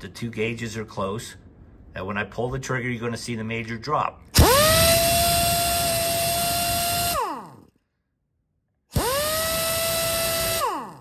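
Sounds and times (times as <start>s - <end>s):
air impact wrench whine: 4.4s - 7.7s, 8.9s - 11.0s.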